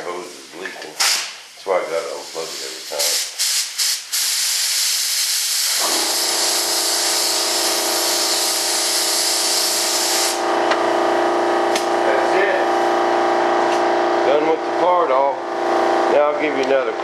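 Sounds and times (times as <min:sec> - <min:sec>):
air compressor motor humming: 0:01.9 - 0:17.0
compressed air hissing: 0:02.0 - 0:10.5.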